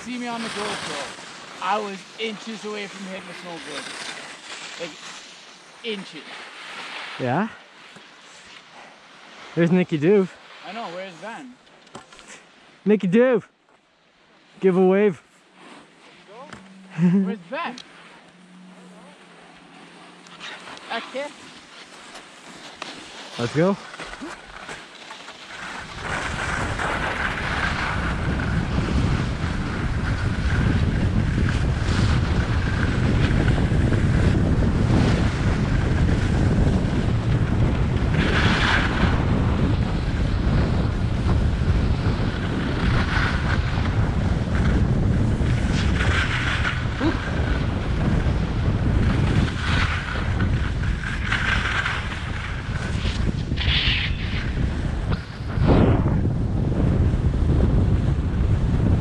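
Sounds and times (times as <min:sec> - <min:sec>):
skis scraping on snow: 0:00.0 - 0:12.8, 0:14.4 - 0:58.9
wind buffeting microphone: 0:25.8 - 0:59.0.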